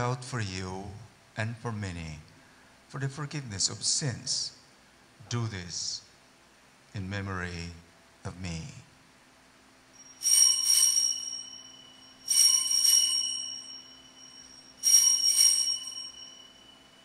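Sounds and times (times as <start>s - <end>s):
altar bells ringing: 10.0s - 17.0s.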